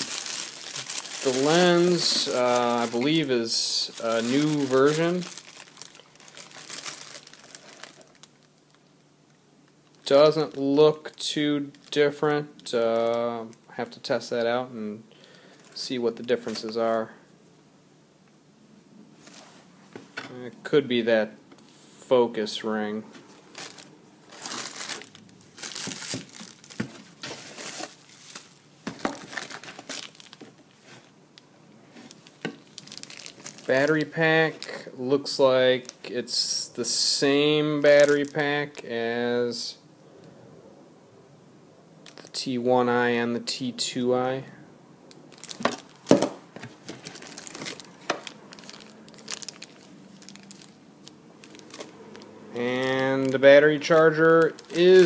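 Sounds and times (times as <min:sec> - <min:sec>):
bubble wrap crinkling: 0:00.0 - 0:09.0, 0:09.8 - 0:12.0, 0:23.3 - 0:35.0, 0:37.9 - 0:38.9, 0:42.0 - 0:42.4, 0:45.1 - 0:55.0.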